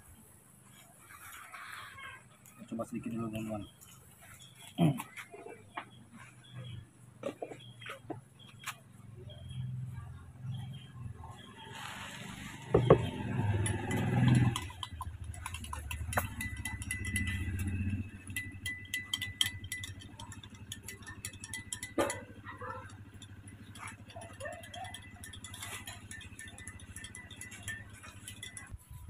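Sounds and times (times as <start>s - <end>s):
spoon clinking in a glass: 12.7s - 29.0s.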